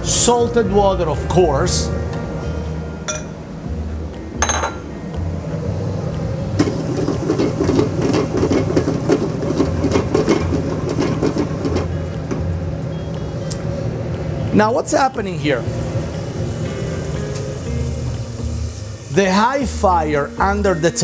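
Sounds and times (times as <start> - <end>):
metal cookware clink: 3.1 - 3.4, 4.4 - 4.9
tomato puree boiling and bubbling: 5.6 - 20.8.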